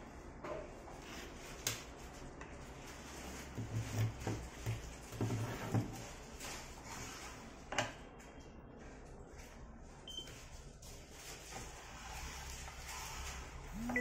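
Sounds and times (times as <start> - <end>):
short high electronic beep: 13.8 - 14.0.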